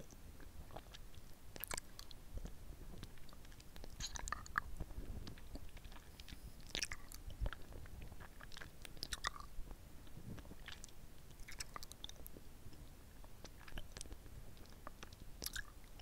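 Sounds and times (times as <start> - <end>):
lollipop sucking and licking: 3.0 - 4.7.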